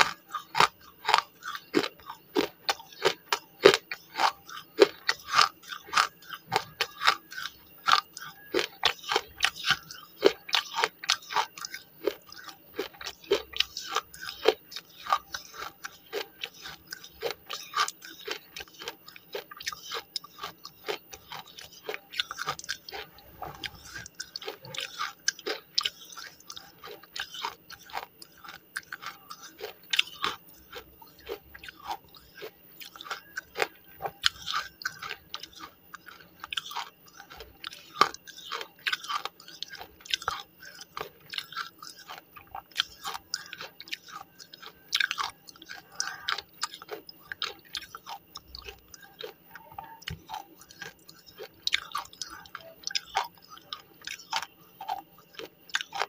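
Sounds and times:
gritty chewing crunches: 0.0 - 56.0.

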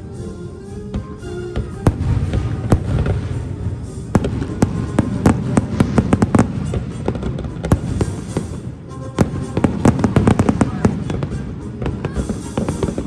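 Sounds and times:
background music: 0.0 - 13.0
fireworks bangs: 1.6 - 13.0.

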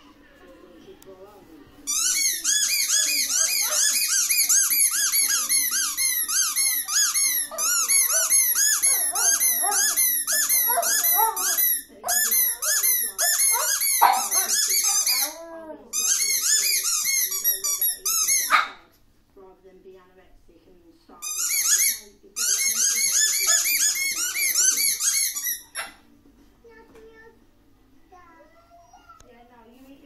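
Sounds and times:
rubber squeaky toy squeaking: 1.9 - 18.7, 21.2 - 26.0.

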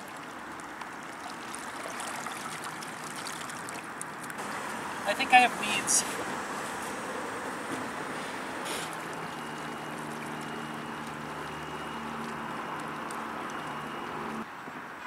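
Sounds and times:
water washing: 0.0 - 14.4
electric boat motor humming: 4.4 - 14.5.

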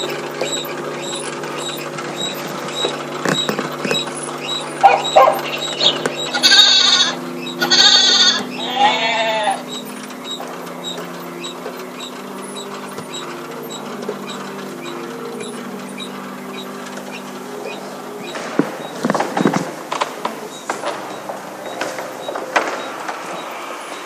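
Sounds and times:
knocks and clatter: 0.0 - 8.6, 9.6 - 24.0
faint high chirp: 0.0 - 19.0
low droning tones: 0.0 - 24.0.

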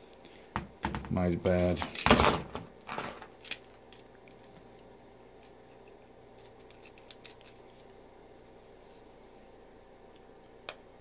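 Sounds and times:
tool handling noise: 0.6 - 3.7.

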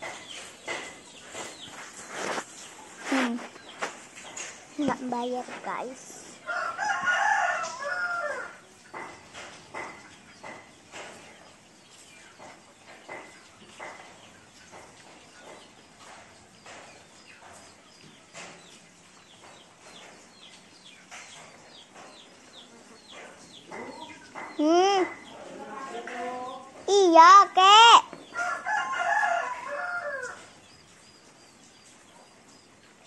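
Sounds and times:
bird calls: 0.0 - 33.0
steady rain: 0.0 - 33.0
rooster crowing: 6.4 - 8.6, 28.4 - 30.4
hen clucks: 21.0 - 30.6.

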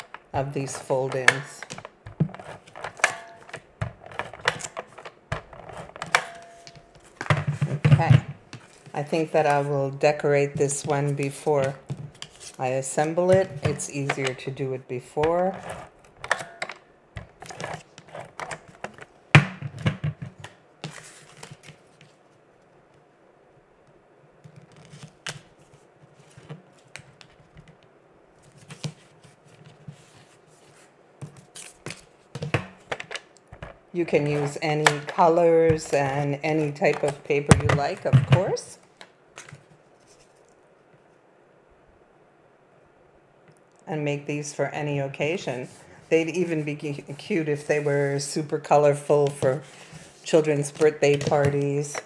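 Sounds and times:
faint room hiss: 0.0 - 52.0
paper rustling: 20.4 - 22.3.

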